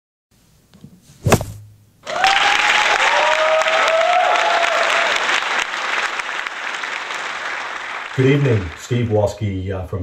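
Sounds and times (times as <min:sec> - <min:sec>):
sharp knock: 0:01.2 - 0:01.8
crowd applauding: 0:02.0 - 0:09.5.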